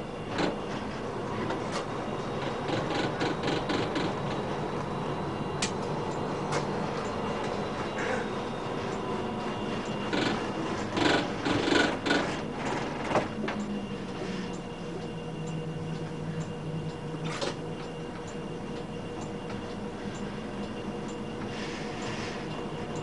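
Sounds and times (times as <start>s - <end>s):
tram low hum: 0.0s - 23.0s
tram wheels clattering on tracks: 0.2s - 14.2s.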